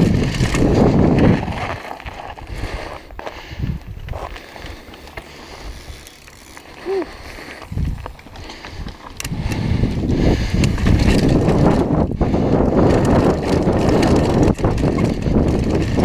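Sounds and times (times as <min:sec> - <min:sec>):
wind on microphone: 0:00.0 - 0:04.3, 0:07.6 - 0:08.1, 0:08.7 - 0:16.0
bike rattling: 0:00.0 - 0:16.0
bike tyres on dirt and gravel: 0:00.0 - 0:16.0.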